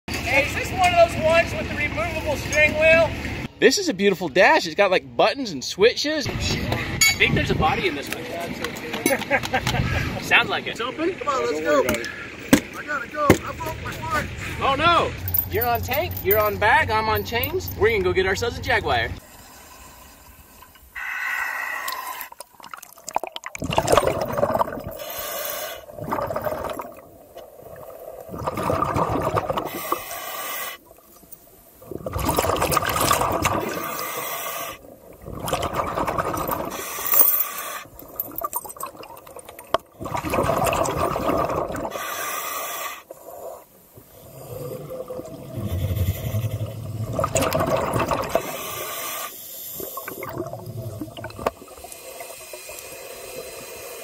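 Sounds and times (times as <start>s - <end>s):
hissing regulator inhale: 19.2s - 22.4s, 24.9s - 25.9s, 29.6s - 30.9s, 33.7s - 34.9s, 36.6s - 38.0s, 41.8s - 44.9s, 45.5s - 47.2s, 48.3s - 50.2s, 51.6s - 54.0s
exhaled bubbles rushing: 22.3s - 25.2s, 25.8s - 30.0s, 31.8s - 34.2s, 34.8s - 36.9s, 37.9s - 42.0s, 43.1s - 48.8s, 49.8s - 53.6s.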